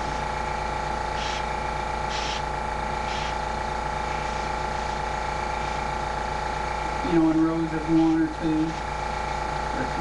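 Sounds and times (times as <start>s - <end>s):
air compressor humming: 0.0s - 10.0s
airbrush hissing: 1.0s - 6.0s.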